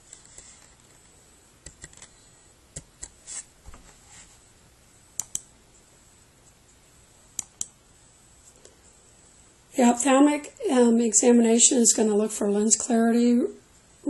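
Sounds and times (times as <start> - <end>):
computer mouse clicks: 1.6 - 2.1, 5.2 - 5.5, 7.3 - 7.8.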